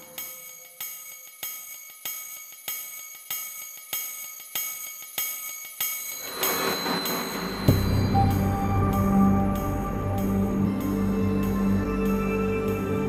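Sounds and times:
bell-like chiming ticks: 0.0s - 12.2s
low hit: 6.2s - 10.6s
rising swell: 6.2s - 12.5s.

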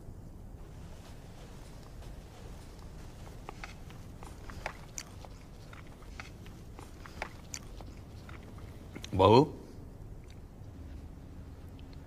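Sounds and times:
low room hum: 0.0s - 12.0s
people chewing: 0.6s - 9.2s.

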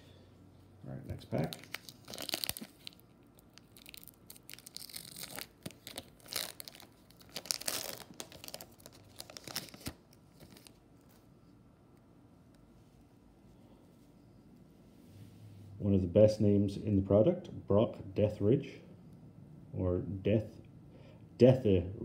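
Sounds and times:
foil wrapper tearing and crinkling: 1.4s - 10.8s.

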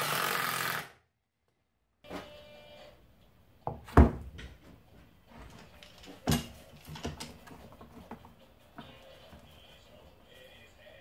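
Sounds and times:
plywood panels knocking: 3.7s - 4.6s.

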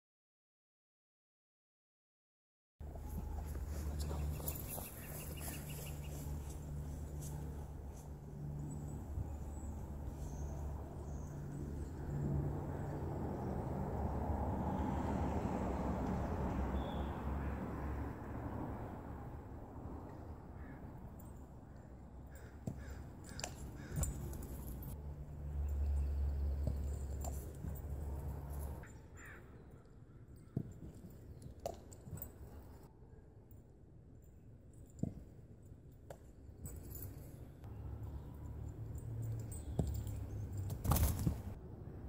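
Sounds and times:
vehicle passing on road: 2.8s - 29.4s, 36.8s - 42.0s
distant calls: 3.0s - 7.7s, 20.6s - 25.0s.

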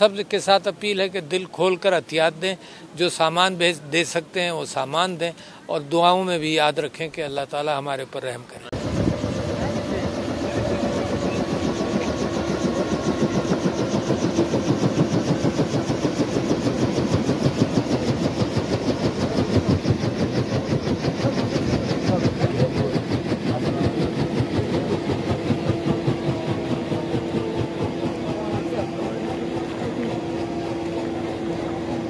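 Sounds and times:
helicopter rotor blades beating: 8.7s - 32.0s
turbine engine whine: 8.7s - 32.0s.

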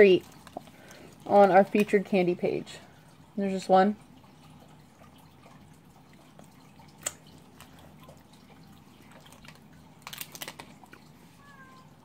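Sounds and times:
low room hum: 0.0s - 12.0s
plastic wrapper crinkling: 9.1s - 11.1s.

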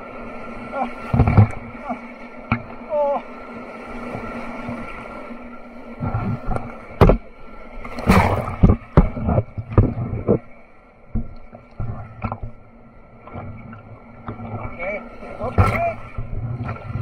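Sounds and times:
rushing whitewater: 0.0s - 8.7s, 14.3s - 17.0s
waves slapping a boat: 0.0s - 17.0s.

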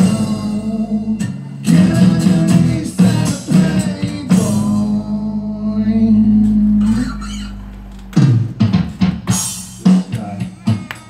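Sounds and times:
electronic drum kit: 0.0s - 5.4s, 6.1s - 11.0s
electric bass: 0.0s - 10.6s
acoustic guitar: 0.0s - 11.0s.

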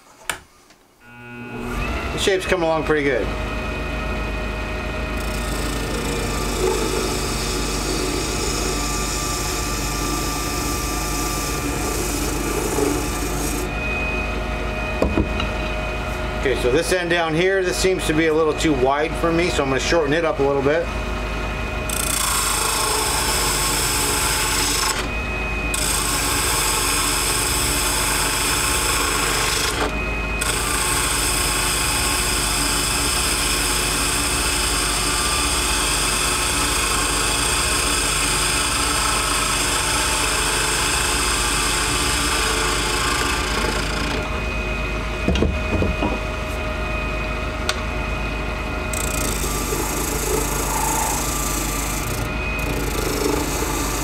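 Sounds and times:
wood lathe motor hum: 1.0s - 13.9s, 16.4s - 44.6s, 47.3s - 54.0s
gouge scraping spinning resin: 5.3s - 13.6s, 49.0s - 54.0s.

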